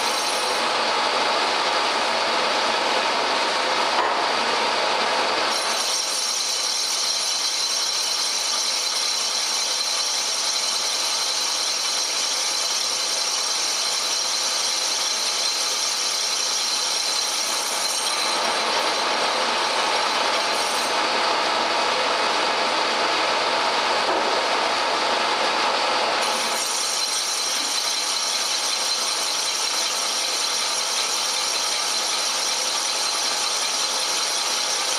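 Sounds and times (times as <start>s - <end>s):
lathe running: 0.0s - 34.9s
high-pitched whine and squeal: 5.4s - 22.0s, 26.2s - 34.9s.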